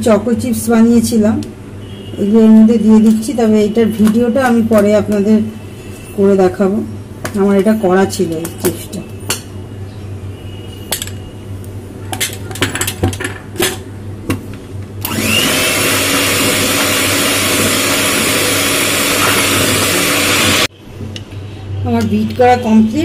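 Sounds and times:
electric hand mixer running: 15.0s - 20.7s.

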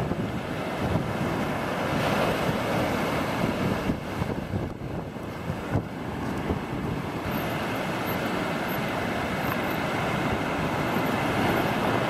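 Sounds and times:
small waves breaking: 0.0s - 12.0s
wind noise on microphone: 0.0s - 12.0s.

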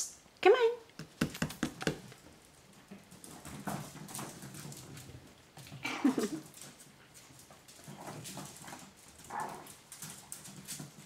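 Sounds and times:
puppy claws clicking on tiles: 1.0s - 2.2s.

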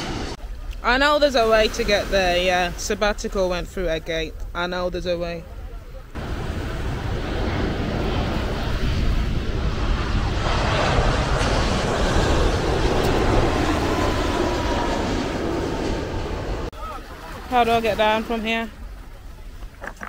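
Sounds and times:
jet airliner passing overhead: 0.0s - 0.6s, 5.5s - 18.5s.

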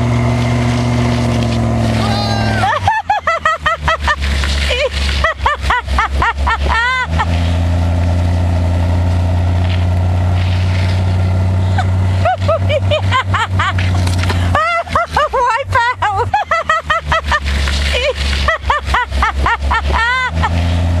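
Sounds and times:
car engine pulling at low speed: 0.0s - 21.0s
people laughing: 2.0s - 7.5s, 11.6s - 20.7s.

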